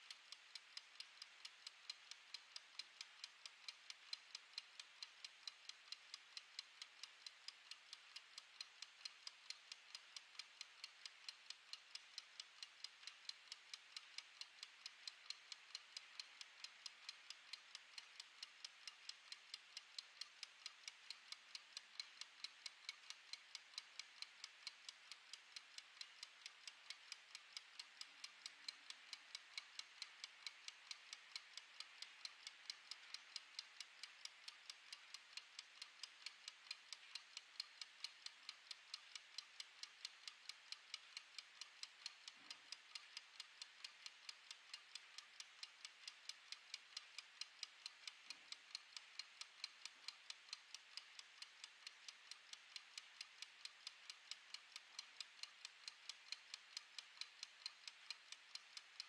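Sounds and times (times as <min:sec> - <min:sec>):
kitchen timer ticking: 0:00.0 - 0:59.0.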